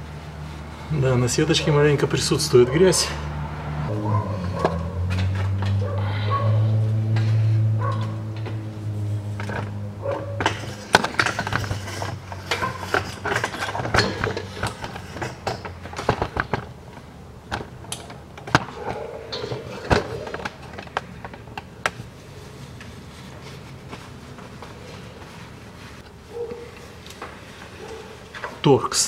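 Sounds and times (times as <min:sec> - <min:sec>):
hands handling parts: 0:07.0 - 0:28.7.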